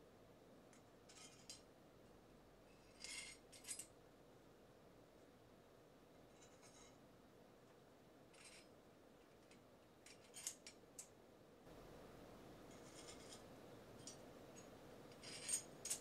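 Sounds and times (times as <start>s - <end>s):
light metallic clinks and scrapes: 1.1s - 1.7s, 2.7s - 4.0s, 6.3s - 7.0s, 8.3s - 11.1s, 12.7s - 16.0s.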